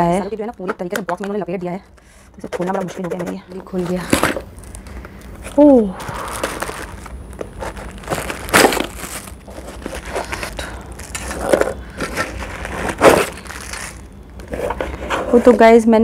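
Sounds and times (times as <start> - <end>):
packing material rustling: 3.6 - 15.5.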